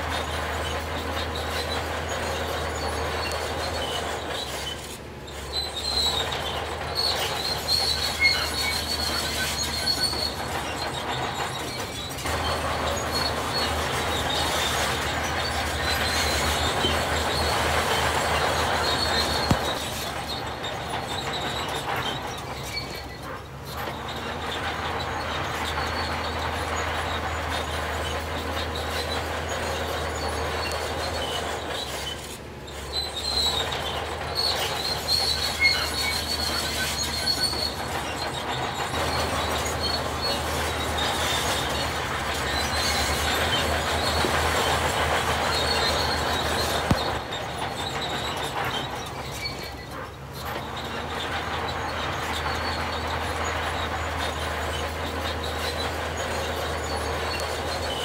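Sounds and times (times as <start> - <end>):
heavy diesel machinery running: 0.0 - 58.0
metal squealing and clanking: 0.0 - 58.0.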